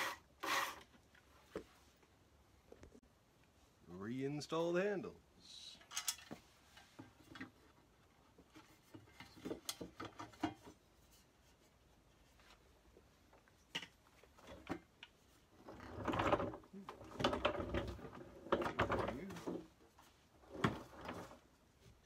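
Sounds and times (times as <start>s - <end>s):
plastic rubbing and scraping: 15.6s - 21.5s.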